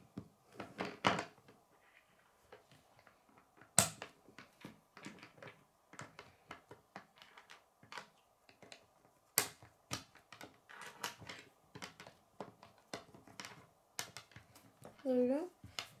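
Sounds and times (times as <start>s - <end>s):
plastic pieces clicking and clattering: 3.6s - 15.0s.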